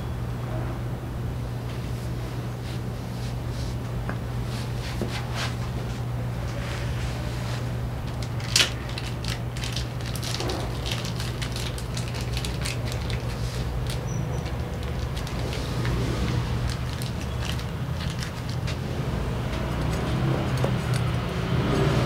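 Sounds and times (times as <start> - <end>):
steady low hum: 0.0 - 22.0
plastic bag crinkling: 8.0 - 21.2.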